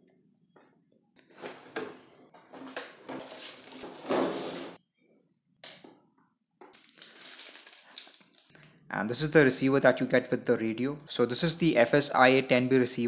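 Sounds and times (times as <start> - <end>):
plastic packaging crackling: 6.7 - 8.7.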